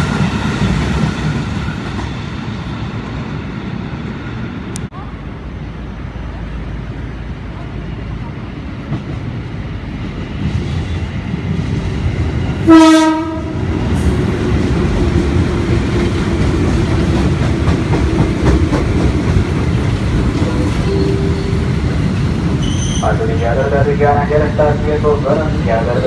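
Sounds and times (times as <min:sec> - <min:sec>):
train rumble and wheel clatter: 0:00.0 - 0:26.0
train horn blast: 0:12.7 - 0:13.6.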